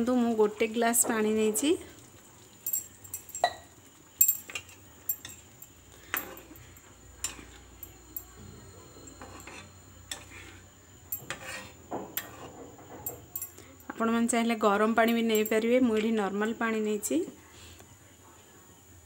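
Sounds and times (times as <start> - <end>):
metal spoon scraping frying pan: 9.2 - 10.6, 11.2 - 12.6.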